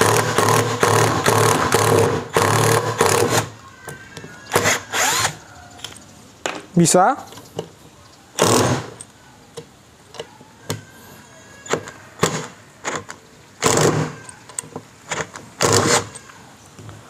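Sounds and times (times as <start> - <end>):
cordless impact driver hammering: 0.0 - 3.5.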